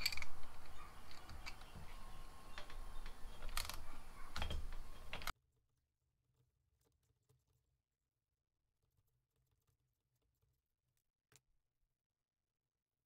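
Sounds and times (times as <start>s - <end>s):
chain breaker clicking: 0.0s - 1.7s.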